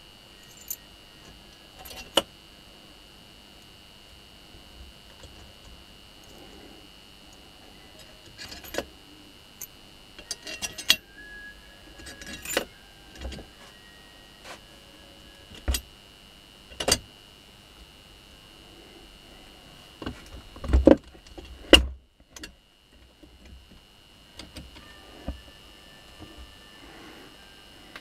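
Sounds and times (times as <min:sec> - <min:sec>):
metallic clinks and knocks: 0:10.2 - 0:11.0.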